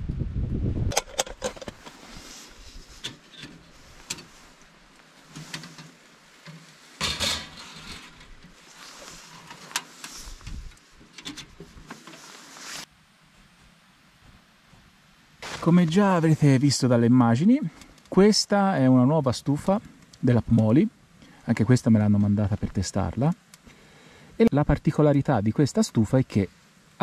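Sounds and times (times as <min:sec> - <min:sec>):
objects being handled: 0:00.9 - 0:12.9.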